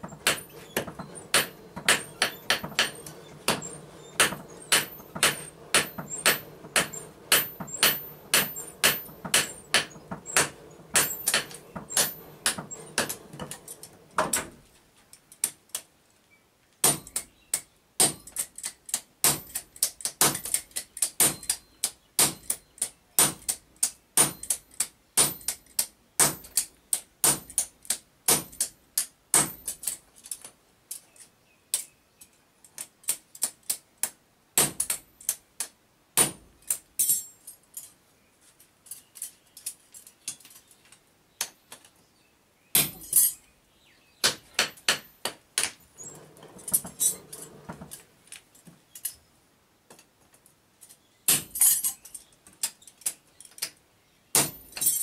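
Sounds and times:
hammer striking metal on anvil: 0:00.0 - 0:14.4.

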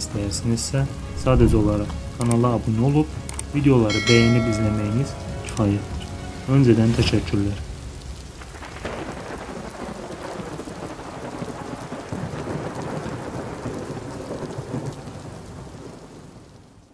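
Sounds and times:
heavy rain: 0:00.0 - 0:16.9
low rolling thunder: 0:00.9 - 0:02.2, 0:07.8 - 0:16.5.

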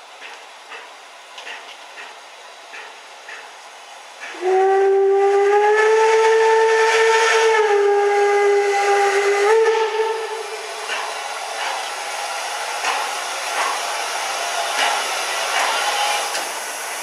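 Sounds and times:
train horn blast: 0:04.3 - 0:11.0.

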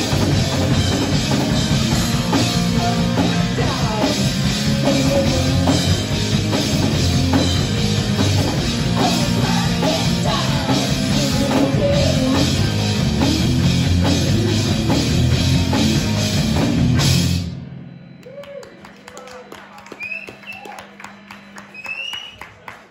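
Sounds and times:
punk rock band playing: 0:00.0 - 0:17.8.

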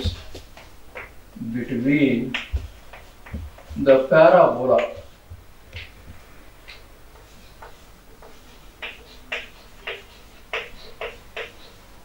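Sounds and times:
writing tool tapping on board: 0:02.3 - 0:03.8, 0:06.7 - 0:11.6.

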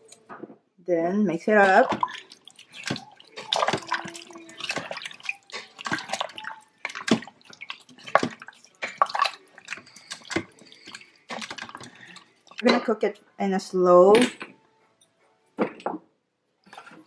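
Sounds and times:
broth sloshing: 0:01.4 - 0:12.6
spoon knocking and scraping pot: 0:01.6 - 0:13.0.

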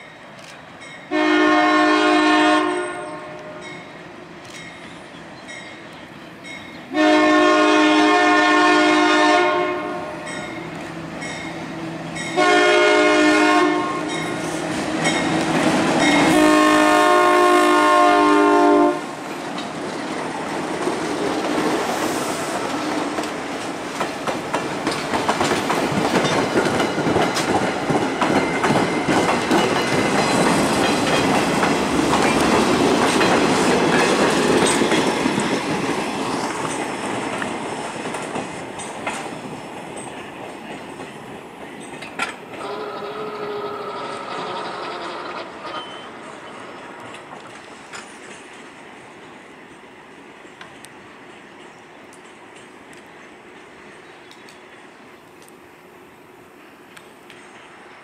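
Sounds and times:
locomotive air horn: 0:01.1 - 0:03.7, 0:06.9 - 0:10.3, 0:12.4 - 0:14.2, 0:16.2 - 0:19.1, 0:42.6 - 0:45.9
wheels clicking over rail joints: 0:19.3 - 0:21.7, 0:22.7 - 0:48.8.

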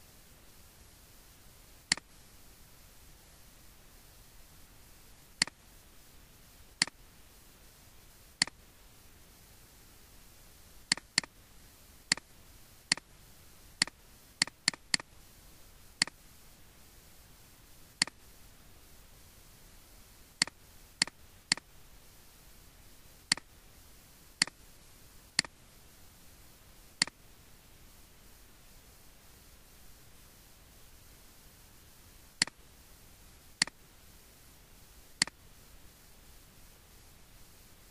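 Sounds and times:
faint steady hiss: 0:00.0 - 0:37.9
computer mouse clicking: 0:01.9 - 0:02.1, 0:05.3 - 0:05.6, 0:06.8 - 0:07.0, 0:08.4 - 0:08.6, 0:10.9 - 0:11.4, 0:12.1 - 0:12.3, 0:12.9 - 0:13.1, 0:13.8 - 0:15.1, 0:16.0 - 0:16.2, 0:18.0 - 0:18.3, 0:20.4 - 0:21.7, 0:23.3 - 0:23.5, 0:24.4 - 0:24.6, 0:25.4 - 0:25.6, 0:27.0 - 0:27.2, 0:32.4 - 0:32.6, 0:33.6 - 0:33.8, 0:35.1 - 0:35.4.

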